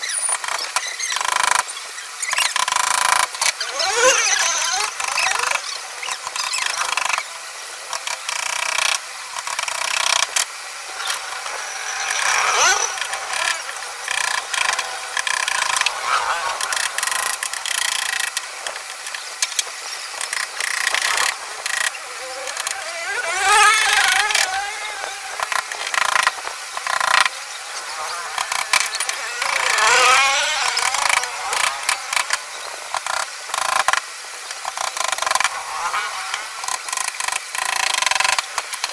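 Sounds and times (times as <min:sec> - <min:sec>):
wavering squeaks: 0:00.0 - 0:02.6, 0:03.6 - 0:07.2, 0:11.0 - 0:18.2, 0:20.6 - 0:26.2, 0:27.8 - 0:32.4.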